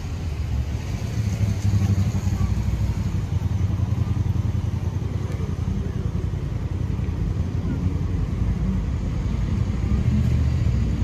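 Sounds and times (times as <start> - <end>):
passing cars rumble: 0.0 - 11.0.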